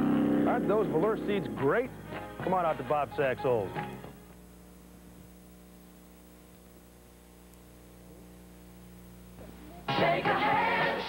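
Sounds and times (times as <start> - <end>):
faint electrical hum: 0.0 - 11.0
tape hiss: 0.0 - 11.0.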